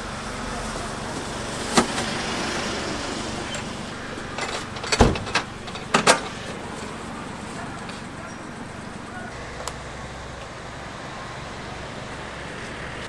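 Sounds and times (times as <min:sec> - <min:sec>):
street noise: 0:00.0 - 0:13.0
metal clanks and knocks: 0:03.5 - 0:09.0.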